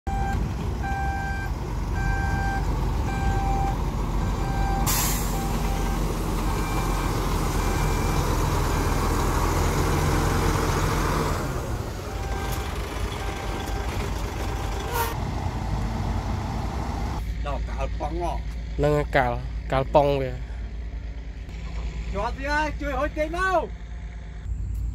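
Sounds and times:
reversing alarm beeping: 0:00.1 - 0:09.2, 0:12.0 - 0:15.1
diesel truck engine running: 0:00.1 - 0:24.9
air brake hiss: 0:04.8 - 0:05.4.

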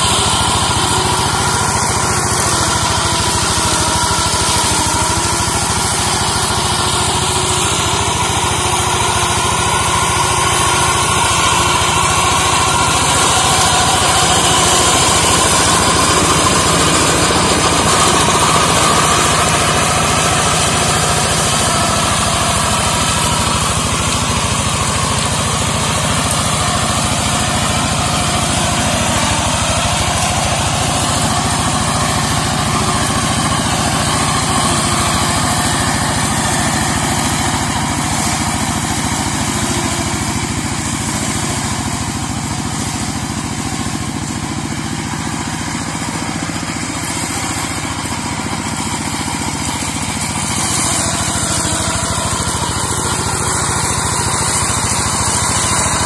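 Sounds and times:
hand tractor mower running: 0:00.0 - 0:56.0.

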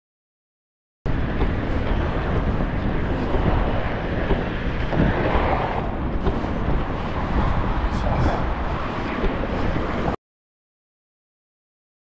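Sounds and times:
wind buffeting microphone: 0:01.1 - 0:10.2.

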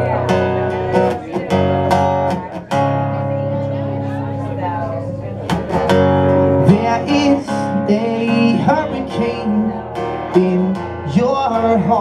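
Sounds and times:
acoustic guitar strumming chords: 0:00.0 - 0:12.0
man singing: 0:06.4 - 0:12.0.

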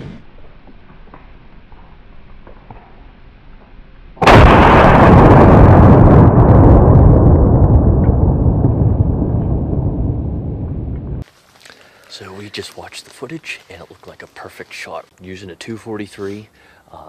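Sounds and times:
rifle shot: 0:04.2 - 0:06.2.

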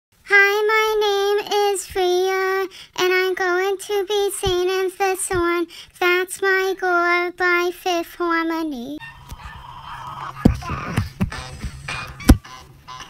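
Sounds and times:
high voice singing unaccompanied: 0:00.2 - 0:09.0.

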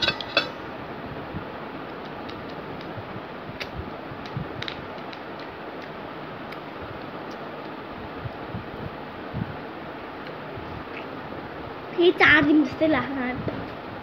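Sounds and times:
faint clicks and taps: 0:03.6 - 0:07.8.

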